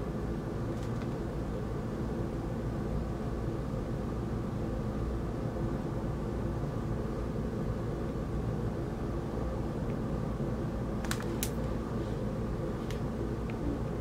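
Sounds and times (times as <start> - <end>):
low background hum: 0.0 - 14.0
magazine page turning: 11.0 - 11.6.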